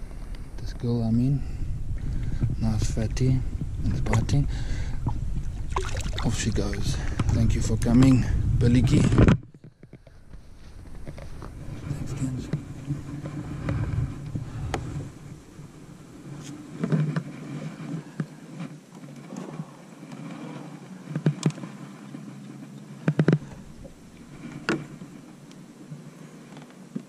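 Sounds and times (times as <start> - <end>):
boat motor humming: 10.8 - 26.5.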